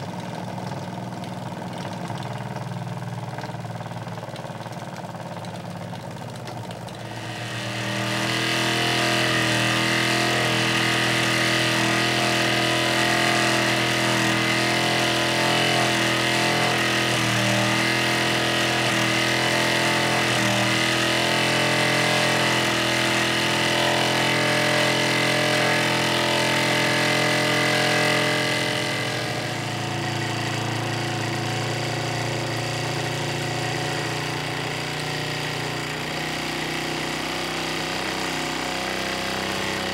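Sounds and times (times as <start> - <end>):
toy steam engine buzzing: 7.0 - 31.6.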